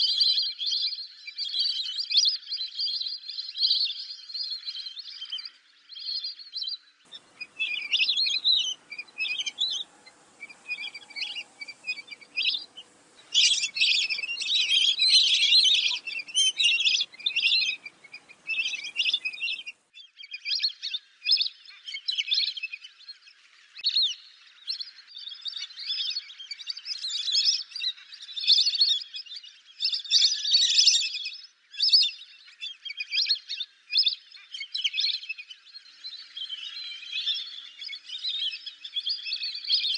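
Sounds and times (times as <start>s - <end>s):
whistling ducks calling: 7.1s - 19.8s.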